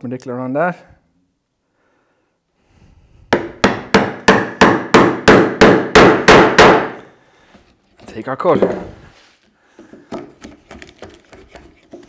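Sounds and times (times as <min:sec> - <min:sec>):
chisel struck chopping wood: 0:03.3 - 0:07.0.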